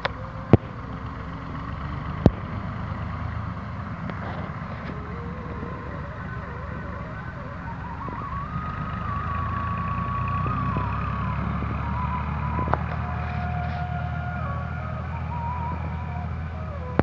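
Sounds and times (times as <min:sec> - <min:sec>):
vehicle engine running: 0:00.0 - 0:17.0
thin tone changing pitch: 0:04.1 - 0:17.0.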